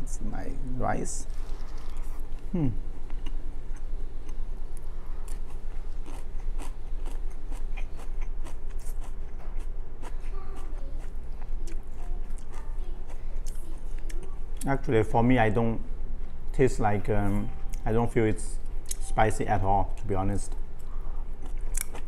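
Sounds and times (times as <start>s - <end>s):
steady low hum: 0.0s - 22.0s
crunchy chewing: 1.2s - 14.7s, 20.8s - 22.0s.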